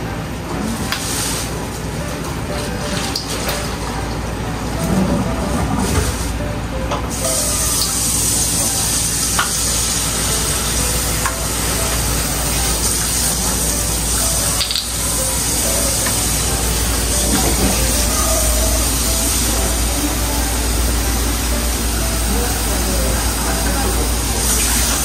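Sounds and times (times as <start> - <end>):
steady rushing hiss: 7.1 - 25.0.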